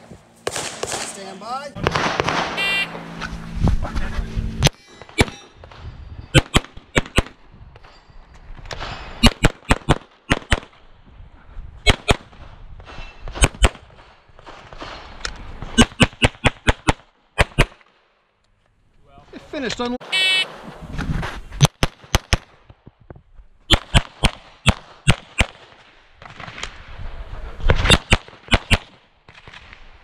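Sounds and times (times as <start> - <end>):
pistol shots: 0.4 - 3.0, 11.8 - 12.3, 23.7 - 26.7, 27.7 - 29.8
shot timer beep: 2.6 - 2.9, 20.1 - 20.4.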